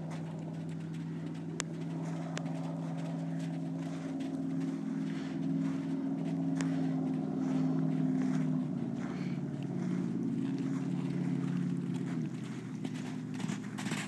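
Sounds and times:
hoofbeats on sand: 0:00.0 - 0:14.0
low motor-like hum: 0:00.0 - 0:14.0.

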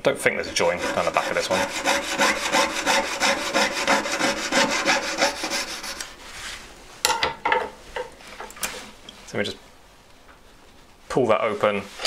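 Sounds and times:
saw cutting through metal: 0:00.4 - 0:06.0.

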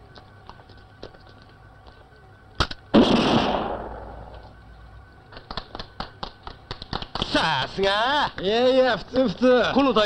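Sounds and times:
gunshot blast: 0:02.6 - 0:04.4.

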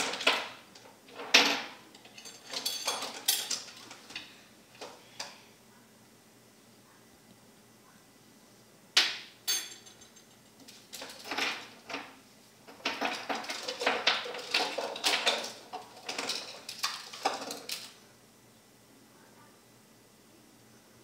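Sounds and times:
metal and dishware rattling: 0:00.0 - 0:04.2, 0:09.5 - 0:18.0.

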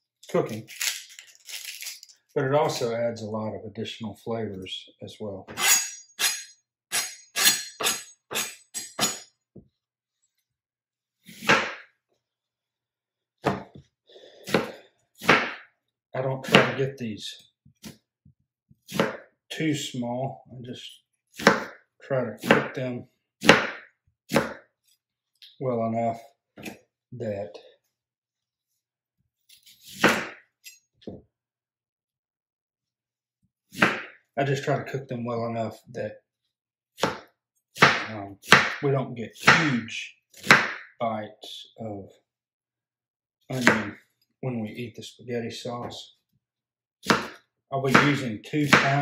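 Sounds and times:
knife cutting onion on cutting board: 0:05.6 - 0:09.2, 0:11.3 - 0:11.8, 0:14.4 - 0:15.6, 0:16.4 - 0:16.8, 0:18.8 - 0:19.2, 0:21.4 - 0:21.8, 0:22.4 - 0:22.8, 0:23.4 - 0:24.6, 0:29.6 - 0:30.4, 0:37.0 - 0:38.8, 0:40.4 - 0:40.8, 0:43.6 - 0:44.0, 0:47.0 - 0:49.0.

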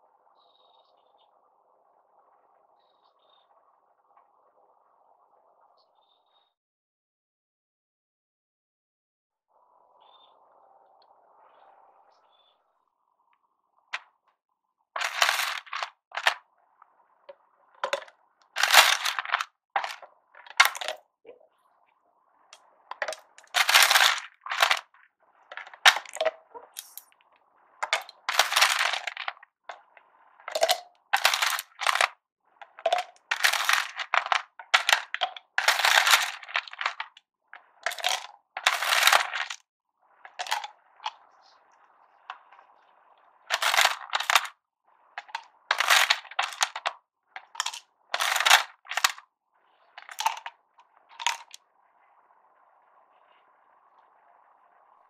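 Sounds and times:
ice cubes clinking into bottle: 0:15.0 - 0:16.4, 0:17.8 - 0:21.0, 0:22.9 - 0:24.9, 0:25.5 - 0:27.0, 0:27.8 - 0:29.8, 0:30.5 - 0:37.2, 0:37.8 - 0:39.6, 0:40.3 - 0:40.7, 0:43.5 - 0:44.5, 0:45.2 - 0:49.2, 0:50.0 - 0:50.5, 0:51.2 - 0:51.6.

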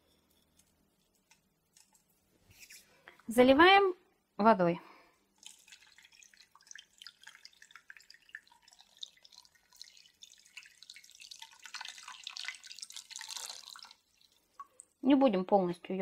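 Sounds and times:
water pouring and splashing: 0:05.3 - 0:15.0.

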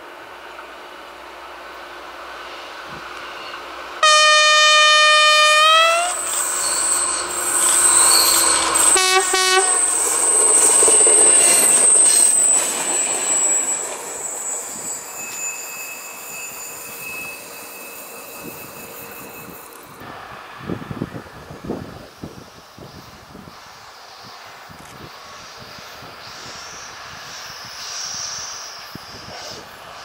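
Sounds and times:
freight train passing: 0:00.0 - 0:30.0
train wheel squeal: 0:02.0 - 0:20.0, 0:22.0 - 0:30.0
diesel locomotive horn: 0:03.4 - 0:06.2, 0:07.1 - 0:10.0.

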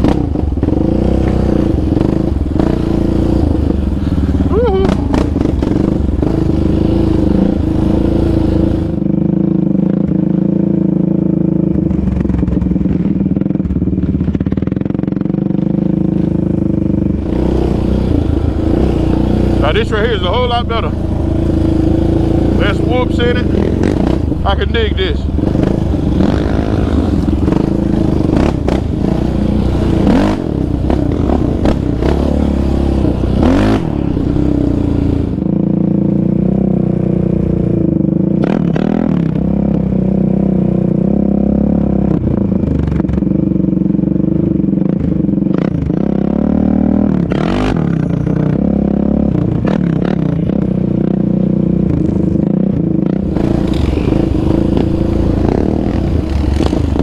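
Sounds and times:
quad bike engine revving: 0:00.0 - 0:57.0
rattle and clatter over rough ground: 0:11.7 - 0:17.8, 0:51.8 - 0:57.0.

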